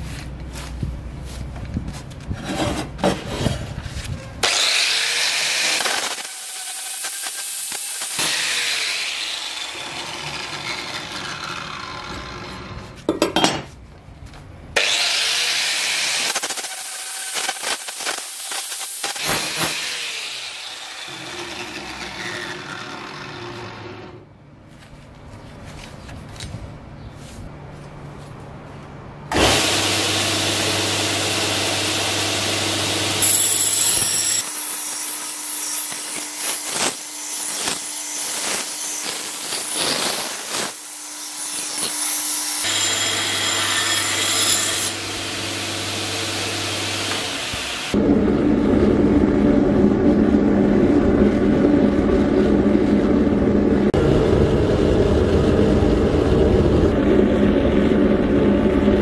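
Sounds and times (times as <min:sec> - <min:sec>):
belt grinder running: 0:04.4 - 0:12.8, 0:29.3 - 0:48.0
angle grinder grinding steel: 0:04.4 - 0:13.0, 0:14.8 - 0:24.2, 0:29.4 - 0:48.0
metal clattering on bench: 0:13.1 - 0:13.7.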